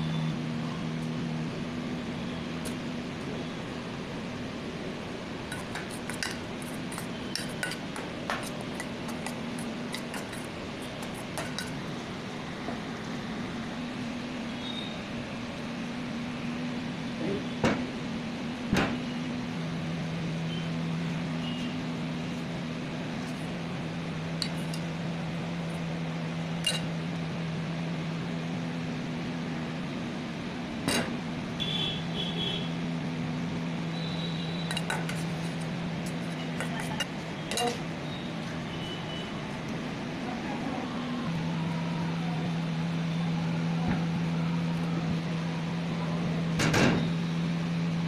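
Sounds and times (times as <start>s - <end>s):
steel kitchenware clinking: 5.5s - 8.9s, 26.6s - 26.9s, 36.3s - 37.8s.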